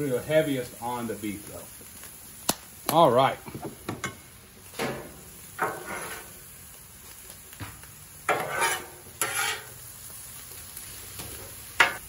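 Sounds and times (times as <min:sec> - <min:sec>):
meat and vegetables sizzling: 0:00.0 - 0:12.0
metal spatula scraping a griddle: 0:04.8 - 0:06.6, 0:08.3 - 0:09.8, 0:11.2 - 0:12.0.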